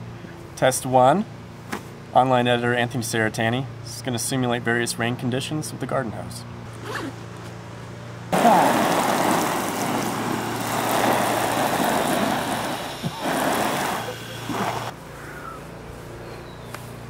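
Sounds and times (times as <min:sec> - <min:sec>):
hose spraying water on fabric: 0:08.4 - 0:14.9.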